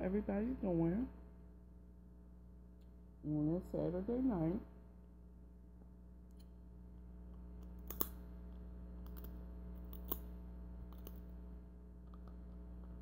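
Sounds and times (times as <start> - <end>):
low electrical hum: 0.0 - 13.0
crab shell clicks: 7.7 - 8.2.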